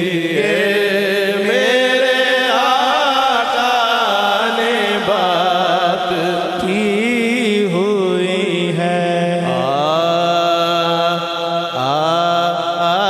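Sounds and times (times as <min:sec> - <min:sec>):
man singing devotional song: 0:00.0 - 0:13.0.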